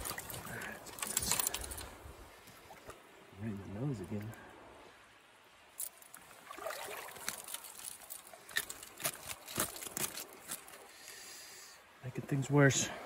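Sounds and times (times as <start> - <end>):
small water splashes and drips: 0.0 - 3.1, 5.5 - 11.2.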